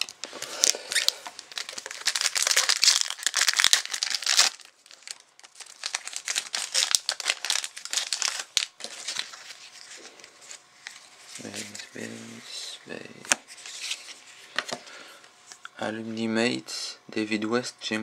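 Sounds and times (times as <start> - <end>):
foil wrapper crinkling: 0.0 - 12.0.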